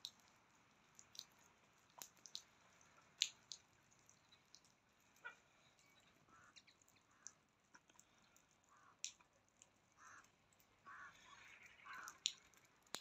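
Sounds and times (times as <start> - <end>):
faint sharp clicks: 6.6 - 10.7, 11.5 - 13.0.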